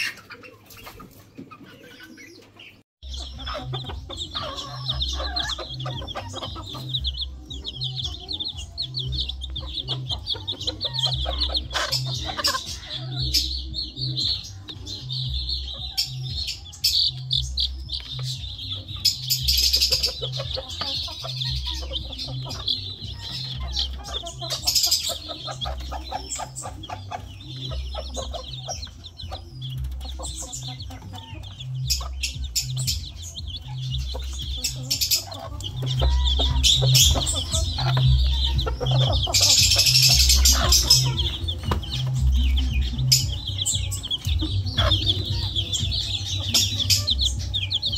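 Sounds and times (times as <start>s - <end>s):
chicks peeping: 0.0s - 47.9s
hen clucking: 0.0s - 47.9s
background music with low beat: 3.0s - 47.9s.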